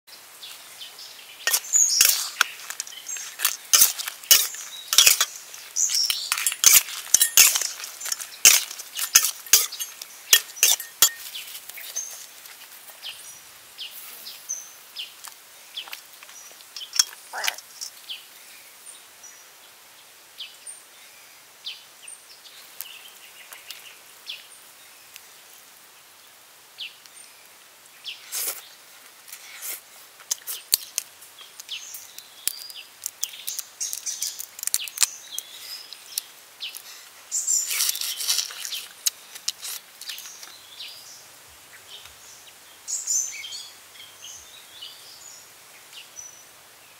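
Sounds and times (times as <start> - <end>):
birds chirping: 0.1 - 19.8, 30.3 - 46.9
metal utensils clinking on wok: 1.5 - 11.4.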